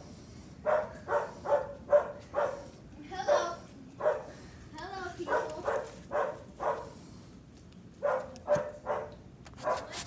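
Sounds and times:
dog barking: 0.6 - 2.7, 3.3 - 4.3, 5.3 - 7.0, 8.0 - 10.0.

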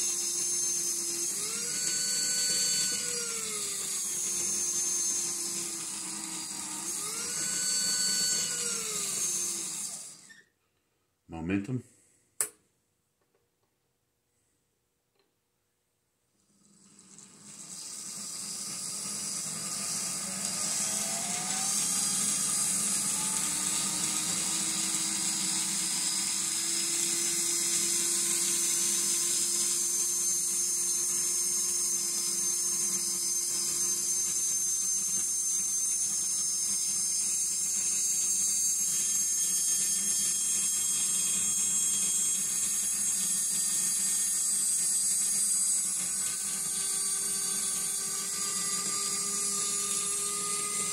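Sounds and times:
small electric motor whining: 0.0 - 10.5, 16.4 - 50.9.

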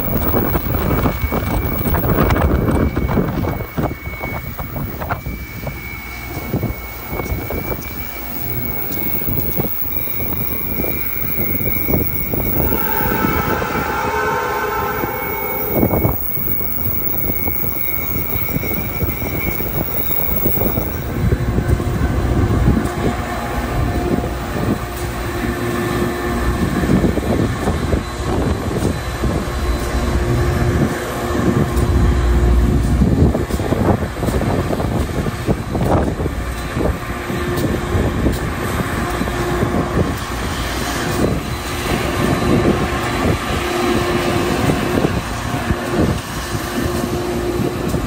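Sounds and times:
high steady tone: 0.0 - 21.3
train wheels rumbling on rail: 0.0 - 48.0
wind: 0.0 - 48.0.

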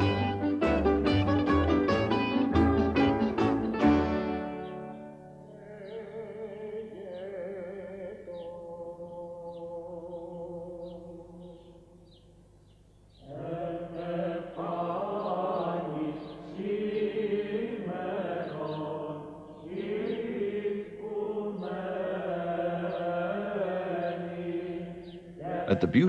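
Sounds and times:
voices chanting: 13.2 - 26.0.

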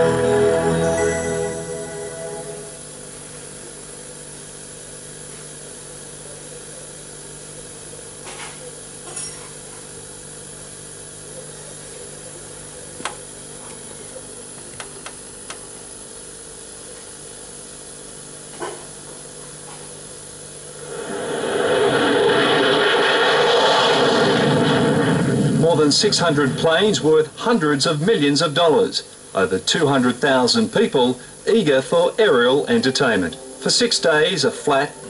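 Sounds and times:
tape hiss: 0.0 - 3.4, 25.6 - 35.0
low electrical hum: 18.5 - 35.0.

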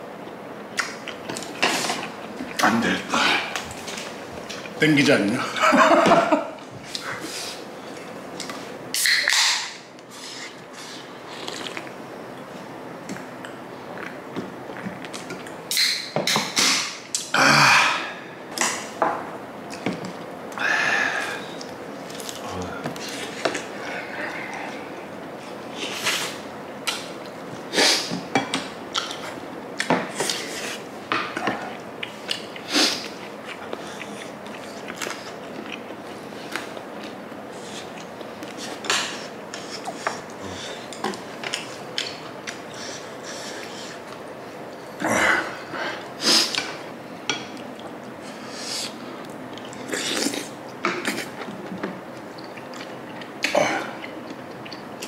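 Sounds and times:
man chewing: 0.2 - 4.8, 6.8 - 17.3, 19.6 - 55.0
wet mouth smacks: 9.0 - 9.7.

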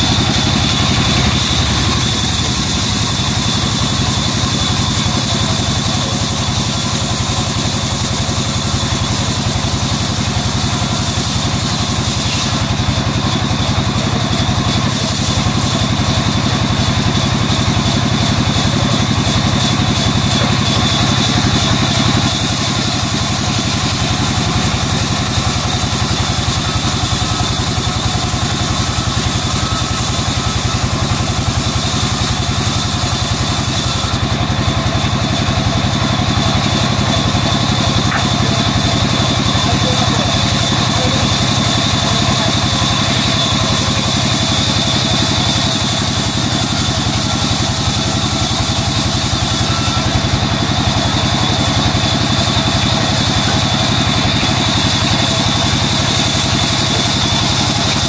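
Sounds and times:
band saw cutting a log: 0.0 - 58.0.

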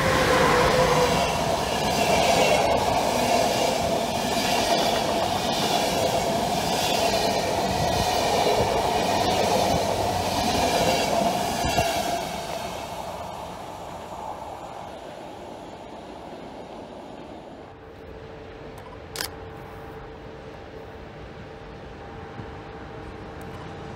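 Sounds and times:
train wheels rumbling on rail: 0.0 - 17.8.

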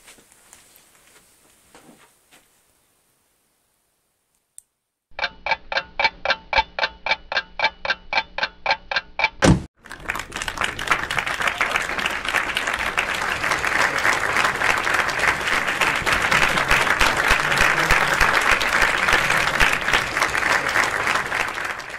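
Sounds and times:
crowd applauding: 9.8 - 21.9.

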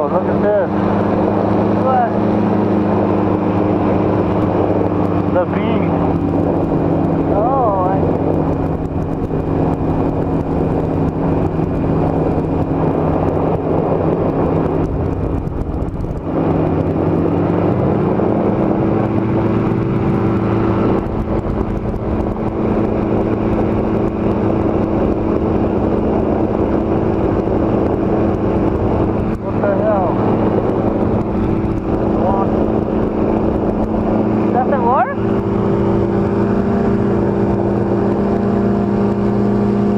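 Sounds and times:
engine and propeller running: 0.0 - 39.9.

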